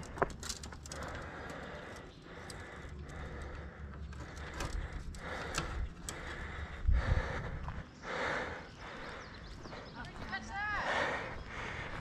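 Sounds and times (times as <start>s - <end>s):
gear clicking: 0.0s - 6.5s
wind rumbling on microphone: 4.4s - 12.0s.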